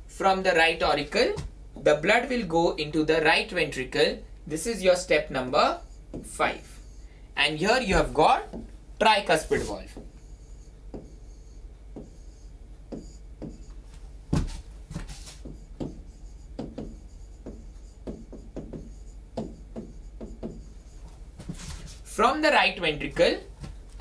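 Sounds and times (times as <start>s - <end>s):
stylus tapping and scratching: 5.6s - 23.8s.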